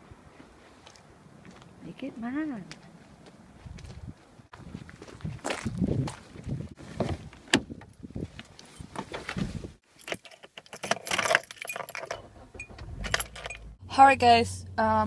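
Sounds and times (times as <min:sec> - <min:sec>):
car keys jangling: 0:09.9 - 0:13.8.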